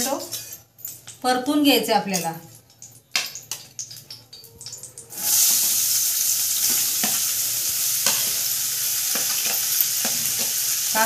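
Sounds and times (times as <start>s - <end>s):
onions sizzling in hot oil: 2.4s - 11.0s.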